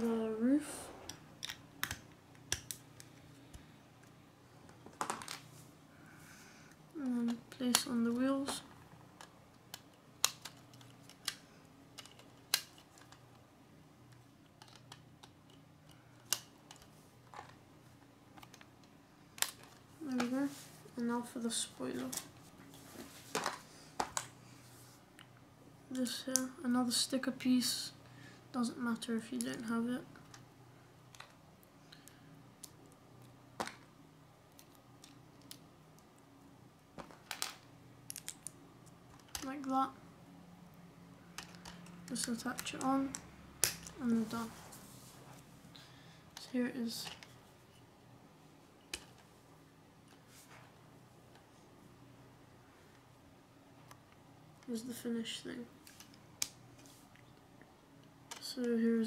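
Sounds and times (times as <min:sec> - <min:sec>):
faint low hum: 0:00.0 - 0:59.0
plastic parts clicking: 0:01.1 - 0:04.1, 0:09.2 - 0:13.4, 0:14.1 - 0:17.6, 0:18.3 - 0:20.3, 0:31.1 - 0:33.9, 0:34.5 - 0:35.6, 0:37.0 - 0:39.7, 0:41.3 - 0:43.9, 0:58.0 - 0:58.7
plastic bricks clicking together: 0:14.5 - 0:15.6, 0:37.0 - 0:39.7.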